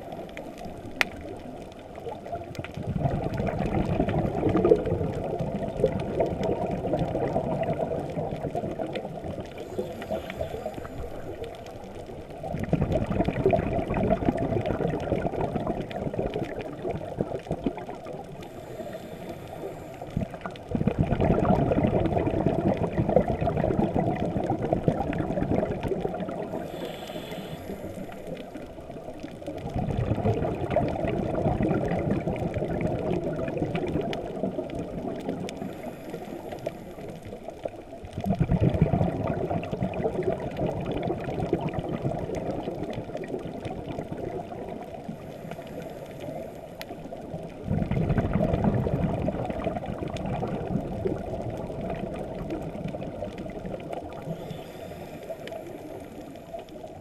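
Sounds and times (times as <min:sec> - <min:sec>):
exhaled bubbles rushing: 0:00.0 - 0:26.8, 0:27.7 - 0:57.0
constant watery rush: 0:00.0 - 0:57.0
regulator inhale hiss: 0:09.6 - 0:11.7, 0:18.4 - 0:20.2, 0:26.5 - 0:28.6, 0:35.6 - 0:37.4, 0:45.2 - 0:47.0, 0:54.3 - 0:56.9.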